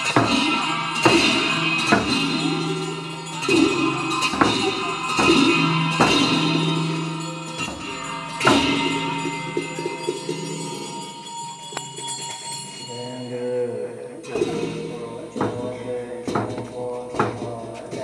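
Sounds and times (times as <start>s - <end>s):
drum strikes: 0.0s - 11.0s, 14.3s - 18.0s
clashing cymbals: 0.0s - 13.4s
low chanting voices: 0.0s - 18.0s.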